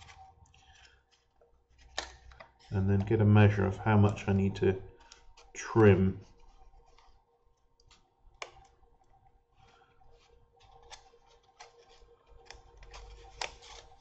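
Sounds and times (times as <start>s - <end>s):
foam parts clicking: 5.0s - 8.8s, 9.6s - 14.0s.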